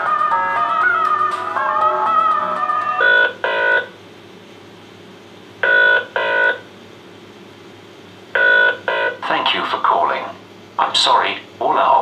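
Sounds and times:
guitar hold music: 0.0 - 3.1
telephone ringing tone: 1.8 - 4.0, 5.6 - 6.6, 8.4 - 9.2.

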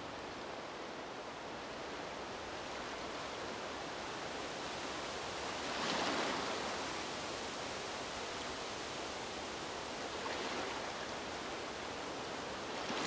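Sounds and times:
gentle waves washing: 9.9 - 13.0.

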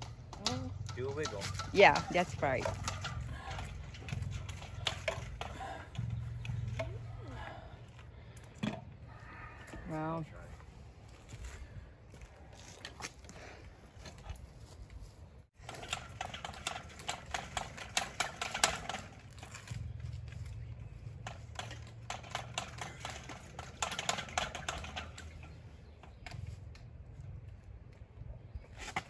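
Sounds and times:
plastic pipe clicking and knocking: 0.0 - 7.1, 8.3 - 8.9, 21.2 - 26.8
low hum: 0.0 - 12.6, 15.1 - 28.8.

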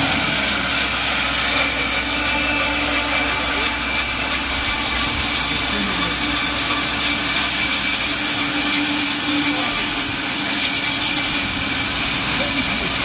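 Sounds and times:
high steady whine: 0.0 - 13.0
sawmill machine running: 0.0 - 13.0.

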